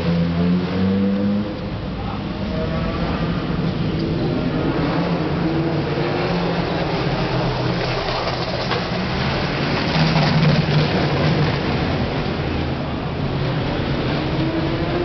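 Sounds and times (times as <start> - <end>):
broad rushing noise: 0.0 - 15.0.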